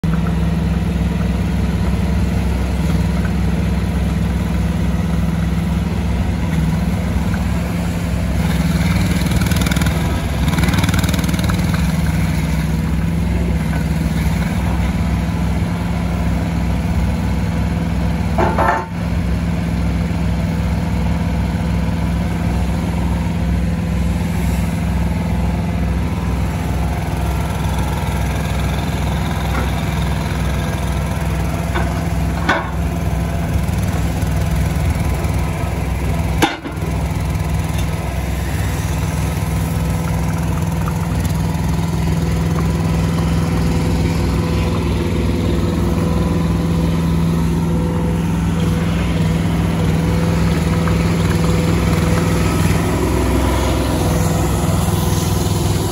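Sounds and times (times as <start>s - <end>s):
small diesel engine running: 0.0s - 55.9s.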